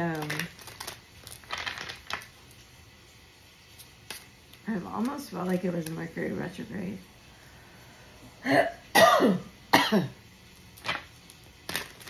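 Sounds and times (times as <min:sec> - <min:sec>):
person clearing throat: 0:08.4 - 0:10.2.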